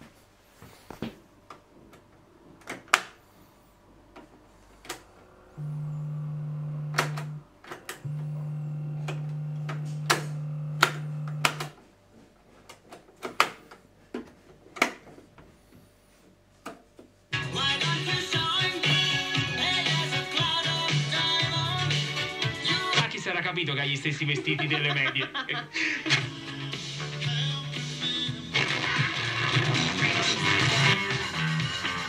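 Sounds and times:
steady low hum: 0.1s - 12.4s.

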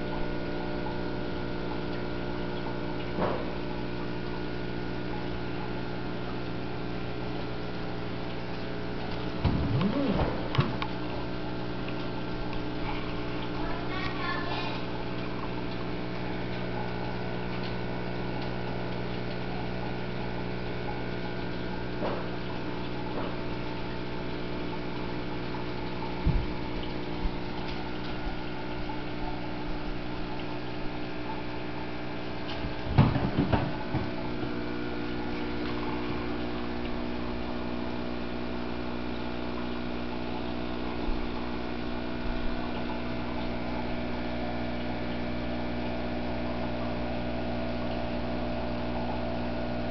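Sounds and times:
bubbling water: 0.0s - 49.9s
pump motor hum: 0.0s - 49.9s.

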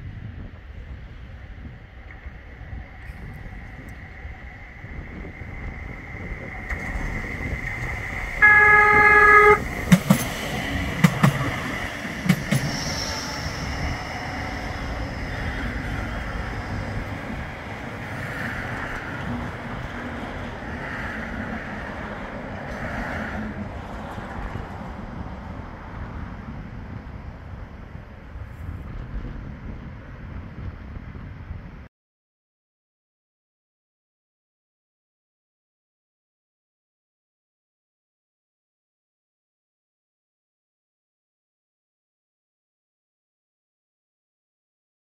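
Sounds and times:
tram rumbling past: 0.0s - 31.8s
tram horn: 7.8s - 10.2s.

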